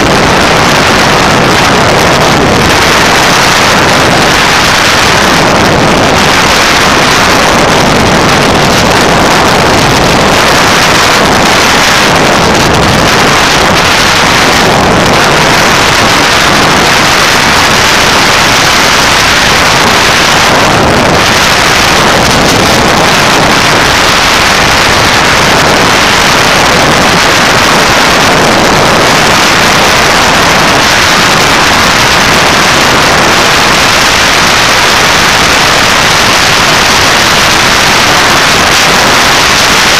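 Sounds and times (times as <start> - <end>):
motorcycle engine: 0.0 - 39.9
wind rushing over microphone: 0.0 - 39.9.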